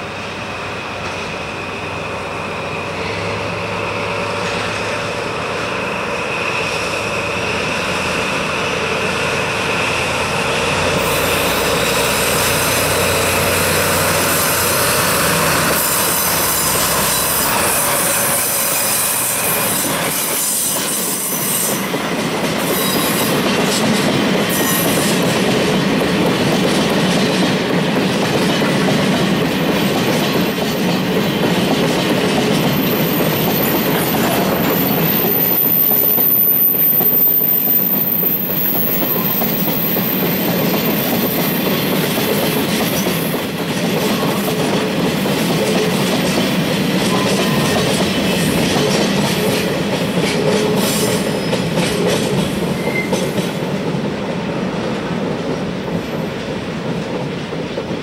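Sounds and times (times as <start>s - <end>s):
diesel locomotive engines working: 0.0s - 58.0s
high wheel squeal: 10.8s - 21.9s, 32.7s - 41.9s, 52.7s - 53.3s.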